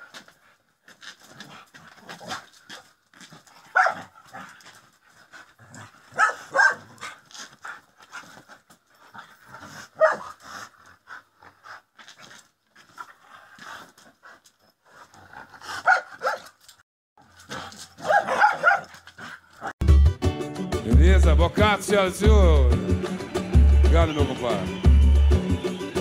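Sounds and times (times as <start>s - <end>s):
dog panting: 0.1s - 16.4s
dog barking: 3.7s - 4.1s, 6.1s - 7.1s, 10.0s - 10.4s, 15.8s - 16.5s, 18.0s - 18.9s.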